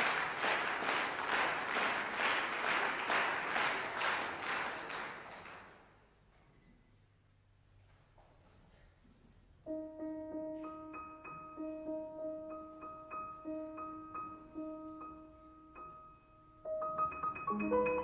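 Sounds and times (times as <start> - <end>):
grand piano playing: 9.7 - 18.0.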